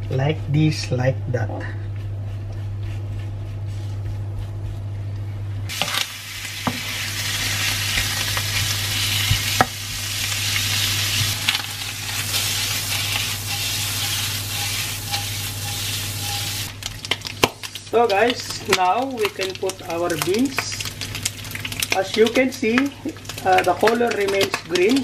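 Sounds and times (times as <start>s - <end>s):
bacon sizzling in pan: 5.7s - 25.0s.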